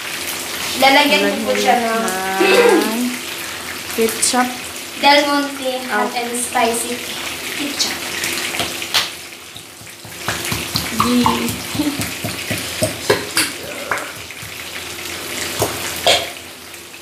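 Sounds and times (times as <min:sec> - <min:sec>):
stew bubbling in a pan: 0:00.0 - 0:17.0
hand slapping bottle bottom: 0:09.8 - 0:14.6.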